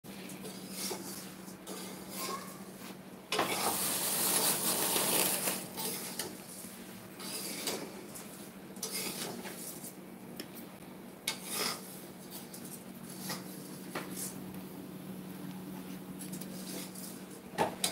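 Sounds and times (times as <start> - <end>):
metal spatula scraping a pan: 0.5 - 2.6, 7.2 - 7.9, 8.8 - 9.8, 11.3 - 12.0
steady low hum: 5.7 - 17.9.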